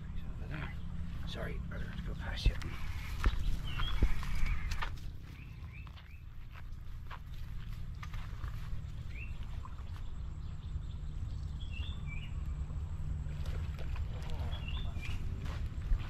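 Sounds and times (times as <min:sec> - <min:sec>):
wind buffeting microphone: 0:02.2 - 0:05.9.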